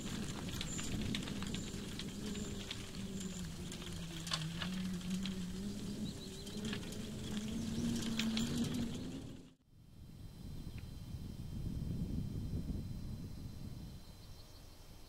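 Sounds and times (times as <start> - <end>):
birds chirping: 0.0 - 9.5
low steady drone: 0.0 - 15.0.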